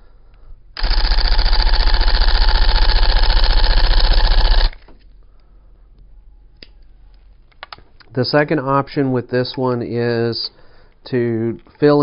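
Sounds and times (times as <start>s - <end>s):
tufting gun rattling: 0.8s - 4.9s.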